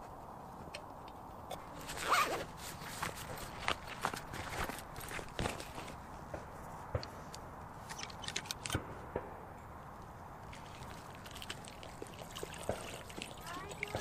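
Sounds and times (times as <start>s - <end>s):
fabric bowl on dry leaves: 10.3s - 14.0s
water trickling into bowl: 10.5s - 14.0s.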